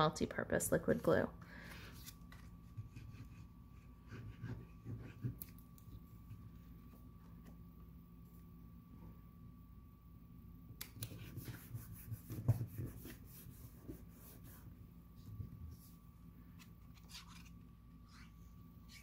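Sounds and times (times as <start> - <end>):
paper rustling and sliding: 16.5 - 19.0.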